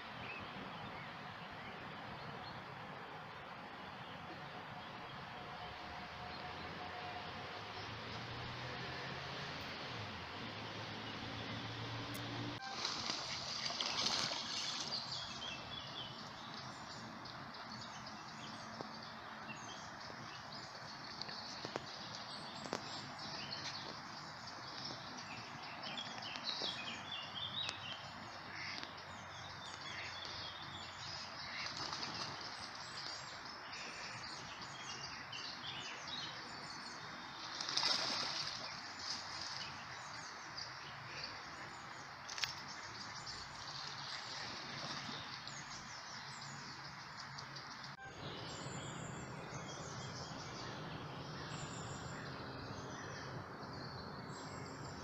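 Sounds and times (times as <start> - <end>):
duck wings splashing water: 12.7 - 15.3, 31.4 - 33.2, 37.4 - 39.9.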